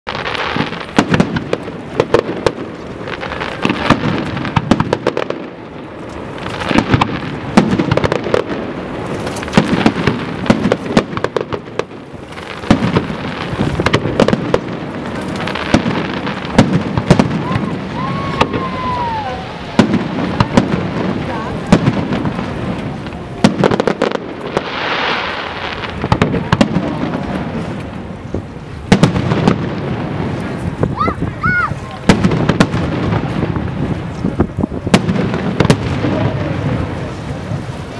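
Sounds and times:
fireworks crackling: 0.0s - 37.9s
fireworks bursting: 0.1s - 37.9s
firework whistle: 15.5s - 20.0s.

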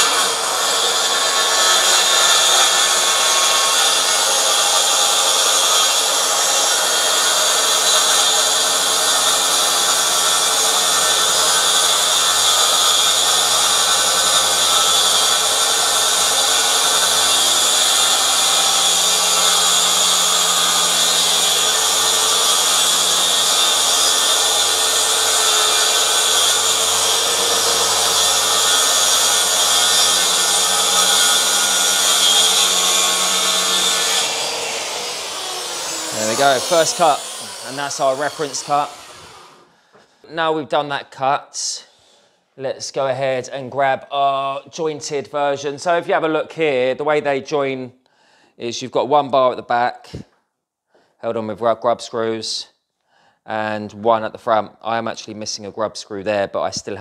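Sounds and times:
circular saw cutting wood: 0.0s - 39.7s.

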